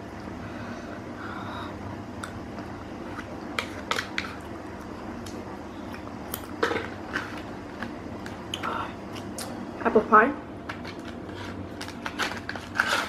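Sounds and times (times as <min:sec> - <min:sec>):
spoon scraping plastic cup: 0:10.7 - 0:13.0.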